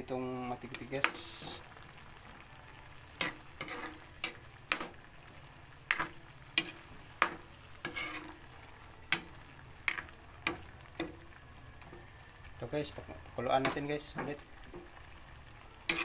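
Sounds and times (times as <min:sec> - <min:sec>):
spatula scraping a metal wok: 0:03.2 - 0:05.0, 0:05.9 - 0:08.5.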